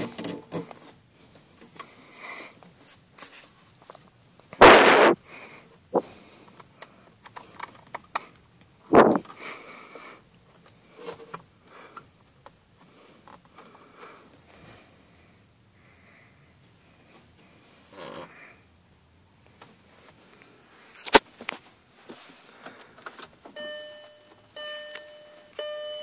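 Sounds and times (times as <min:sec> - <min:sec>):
loud rustling bursts: 0:04.6 - 0:05.2.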